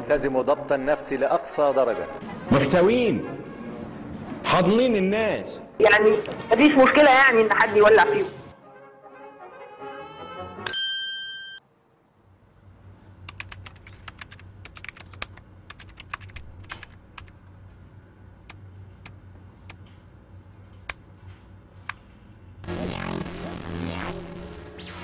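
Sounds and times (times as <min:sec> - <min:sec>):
keyboard keys clicking: 0:13.2 - 0:17.5.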